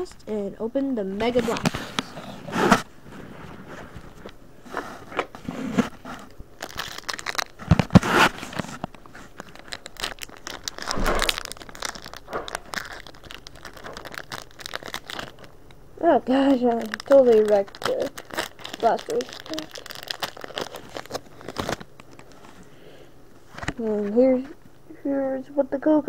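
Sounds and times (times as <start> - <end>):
foil wrapper crinkling and tearing: 5.9 - 22.7.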